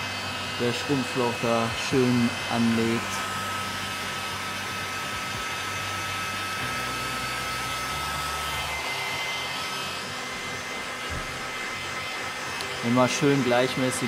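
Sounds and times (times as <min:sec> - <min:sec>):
hot-air blower fan whine: 0:00.0 - 0:14.0.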